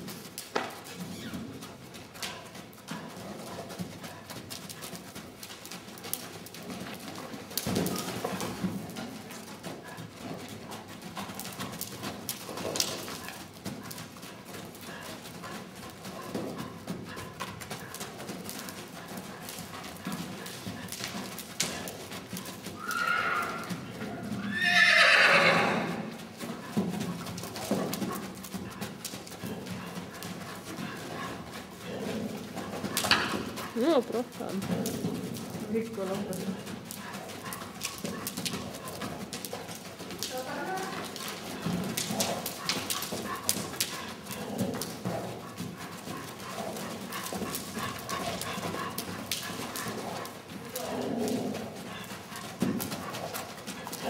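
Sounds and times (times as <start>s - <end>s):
horse hoofbeats cantering: 0.0s - 54.0s
horse whinnying: 22.8s - 26.2s.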